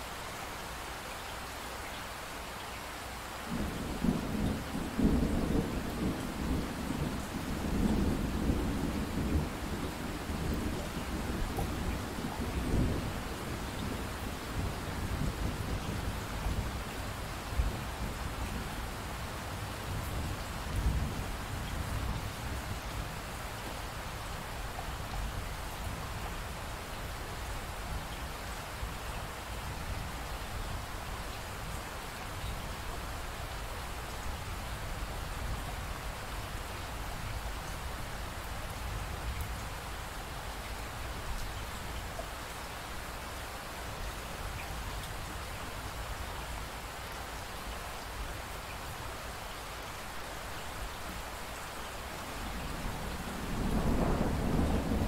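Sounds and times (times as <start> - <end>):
steady rain: 0.0 - 55.0
thunder roll: 52.6 - 55.0.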